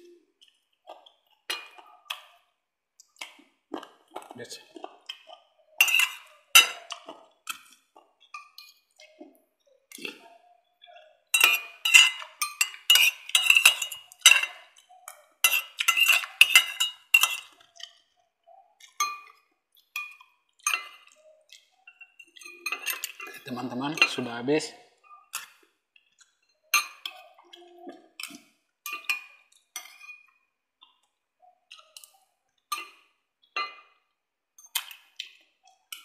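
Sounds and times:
cutlery clinking against plate: 1.5 - 2.3, 4.1 - 8.9, 11.3 - 17.9, 18.8 - 21.2, 21.9 - 24.4, 26.4 - 30.4, 32.7 - 34.0.

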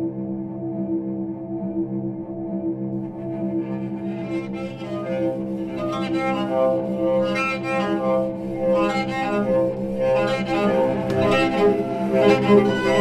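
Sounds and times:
sustained low string bass: 0.0 - 13.0
bowed cello long notes: 2.7 - 13.0.

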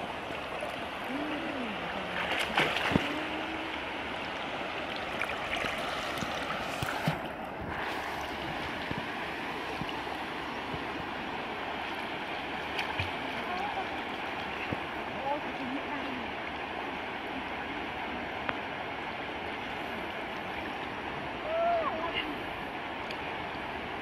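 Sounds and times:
water sloshing and splashing: 0.0 - 16.2
rush of moving water: 0.0 - 24.0.

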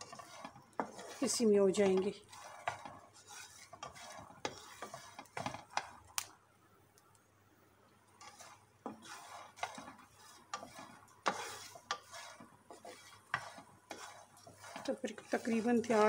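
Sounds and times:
wooden spatula scraping a pan: 0.0 - 6.3, 8.2 - 16.0.

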